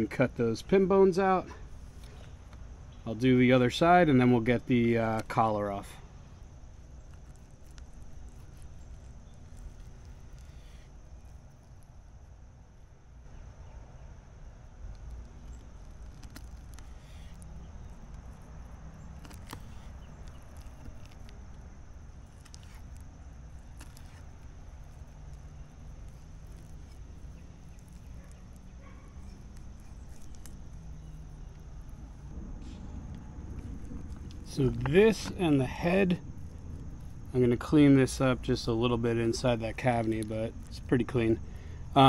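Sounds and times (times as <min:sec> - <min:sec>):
low rumble: 0:30.5 - 0:37.5.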